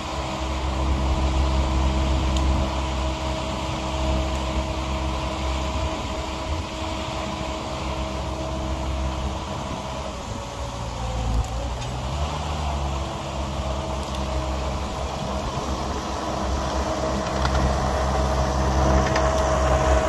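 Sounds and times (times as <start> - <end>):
small loader engine droning: 0.0 - 20.0.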